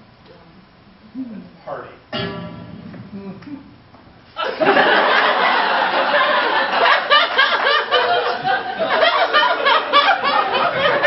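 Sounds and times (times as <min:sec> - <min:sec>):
audience laughing: 0:04.4 - 0:11.0.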